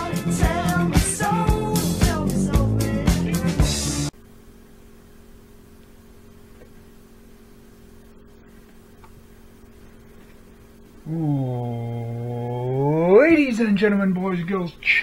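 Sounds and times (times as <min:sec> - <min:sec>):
music with drum beat: 0:00.0 - 0:04.1
person singing: 0:00.0 - 0:04.1, 0:11.1 - 0:13.0
faint low hum: 0:04.2 - 0:15.0.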